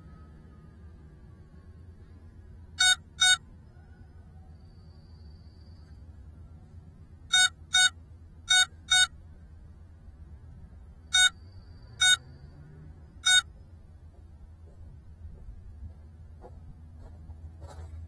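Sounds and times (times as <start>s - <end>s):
faint low hum: 0.0s - 18.0s
short electronic beeps: 2.8s - 3.4s, 7.3s - 9.1s, 11.1s - 12.2s.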